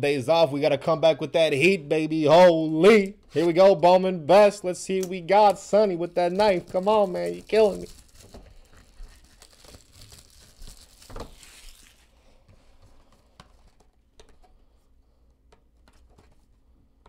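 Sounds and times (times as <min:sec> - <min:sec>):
shrink wrap crinkling and tearing: 0:05.5 - 0:12.2.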